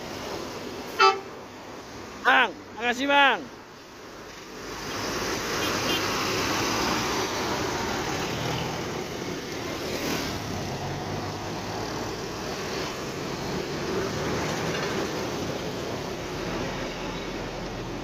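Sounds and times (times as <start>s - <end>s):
bus moving off: 0.0s - 2.8s, 3.4s - 18.0s
cars passing: 0.0s - 18.0s
motorcycles passing: 4.2s - 18.0s.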